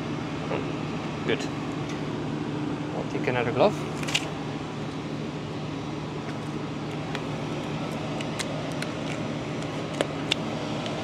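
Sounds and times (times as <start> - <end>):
low machine hum: 0.0 - 11.0.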